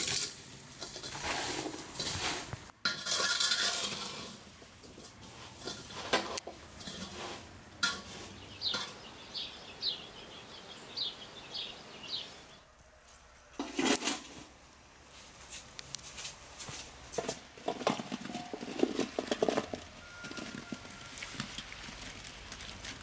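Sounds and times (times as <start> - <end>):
metal clatter: 0.0 - 9.0, 17.2 - 20.9
metal spoon scraping bowl: 0.8 - 8.9, 17.7 - 21.2.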